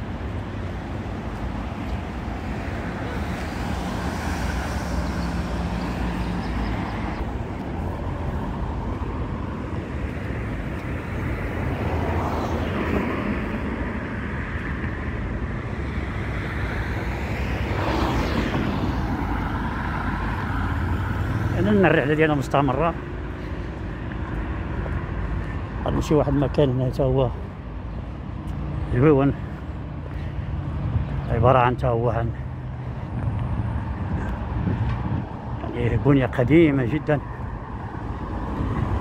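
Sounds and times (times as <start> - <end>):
road traffic: 0.0 - 39.0
vehicles passing: 0.0 - 39.0.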